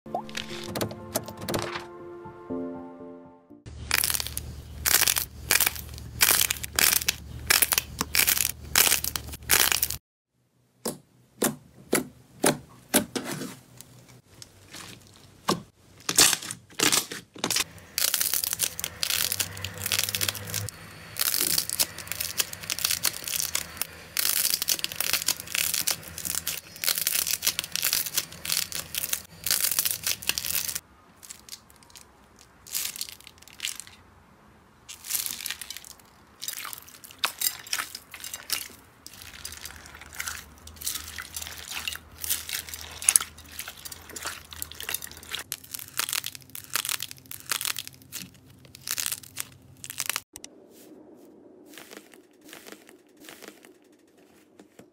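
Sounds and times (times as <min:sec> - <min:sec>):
slime popping and crackling: 0:03.8 - 0:10.0, 0:18.0 - 0:32.0, 0:34.9 - 0:50.4, 0:51.7 - 0:53.8.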